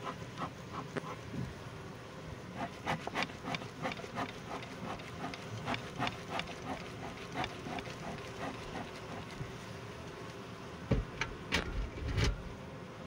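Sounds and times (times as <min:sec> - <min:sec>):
honey bees buzzing: 0:00.0 - 0:11.5, 0:12.4 - 0:13.0
short scrapes: 0:02.6 - 0:09.4.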